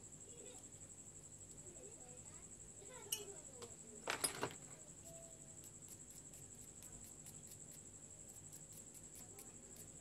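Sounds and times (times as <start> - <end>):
faint high-pitched whine: 0.0 - 10.0
soft irregular ticks: 4.9 - 10.0.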